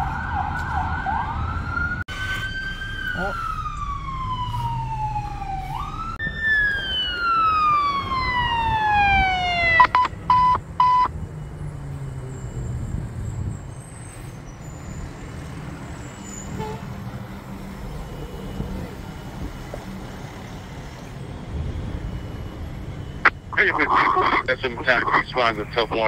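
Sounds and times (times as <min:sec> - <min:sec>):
emergency vehicle siren: 0:00.0 - 0:26.0.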